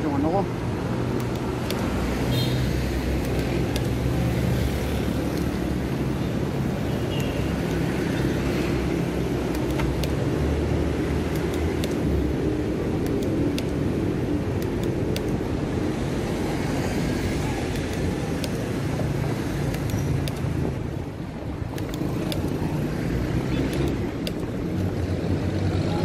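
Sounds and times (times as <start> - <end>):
tyre and road noise: 0.0 - 26.0
vehicle engines humming: 0.0 - 26.0
sharp clicks: 1.1 - 5.8, 6.6 - 10.4, 11.2 - 12.2, 12.9 - 15.5, 17.6 - 21.0, 21.6 - 25.0.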